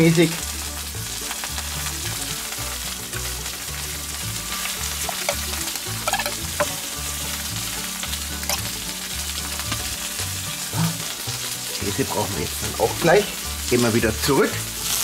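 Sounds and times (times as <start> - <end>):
food sizzling on a griddle: 0.0 - 15.0
metal spoon clicking on steel bowl: 6.1 - 6.7.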